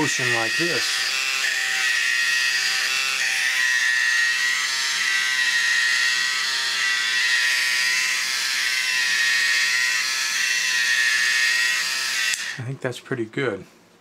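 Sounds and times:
electric gear motor whining: 0.0s - 12.6s.

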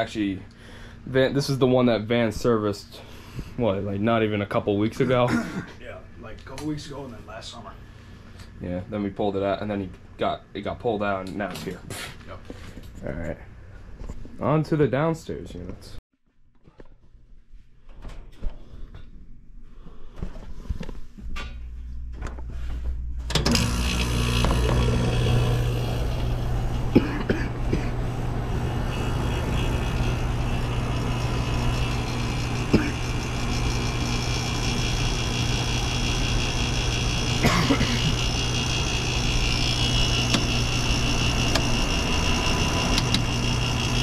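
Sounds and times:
air conditioner running: 0.0s - 16.0s, 17.8s - 44.0s.

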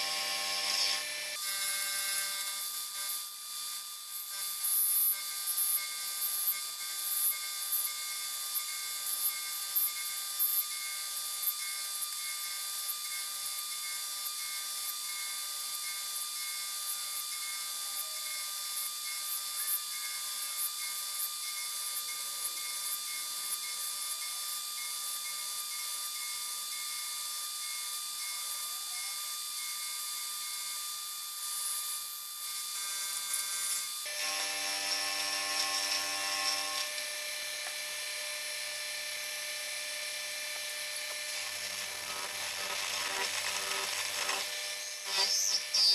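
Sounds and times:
milling machine cutting metal: 0.0s - 3.1s, 32.6s - 38.2s, 39.2s - 45.9s.

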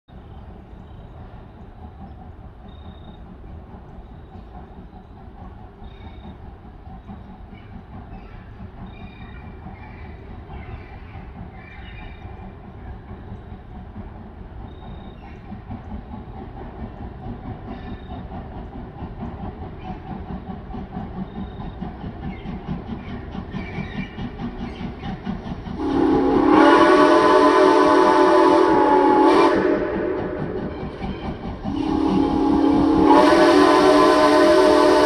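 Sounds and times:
steam locomotive chuffing: 0.1s - 35.0s
steam whistle: 25.8s - 35.0s.

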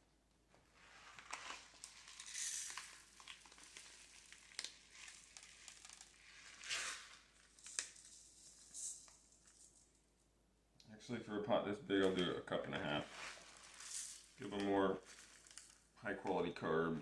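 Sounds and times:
dry rice pouring into pot: 0.9s - 9.5s, 13.0s - 15.8s
plastic bag crinkling: 0.9s - 10.0s, 12.9s - 16.0s.

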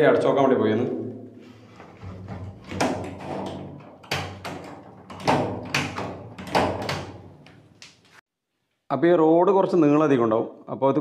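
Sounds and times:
door latch clacking: 2.0s - 7.7s.

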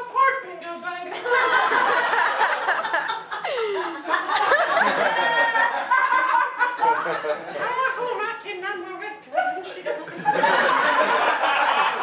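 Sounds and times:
audience laughing: 1.1s - 7.9s, 10.0s - 12.0s.

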